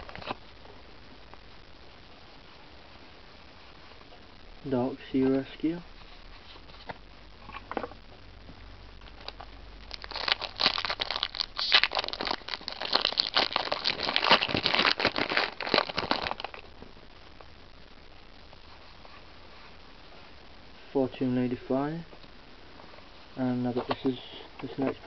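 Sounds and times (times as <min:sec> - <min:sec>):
foil pack crinkling and tearing: 0:09.0 - 0:16.7.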